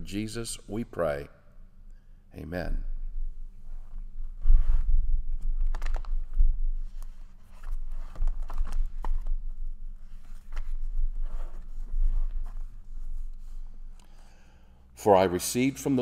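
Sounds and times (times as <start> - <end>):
paper rustling and crinkling: 5.4 - 13.7.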